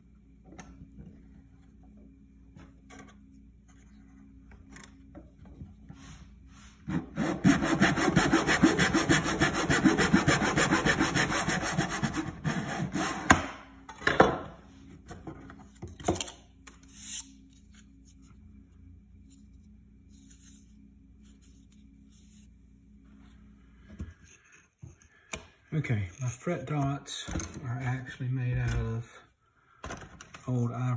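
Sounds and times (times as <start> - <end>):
saw cutting wood: 6.9 - 13.4.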